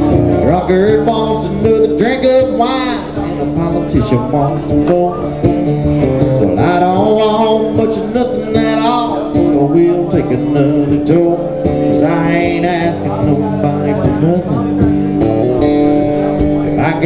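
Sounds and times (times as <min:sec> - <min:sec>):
man singing: 0:00.0 - 0:15.4, 0:16.4 - 0:17.0
acoustic guitar strumming: 0:00.0 - 0:17.0.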